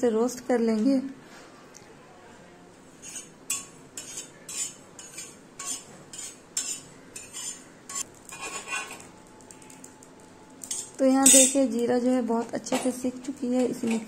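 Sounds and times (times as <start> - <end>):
spatula scraping griddle: 2.9 - 9.0.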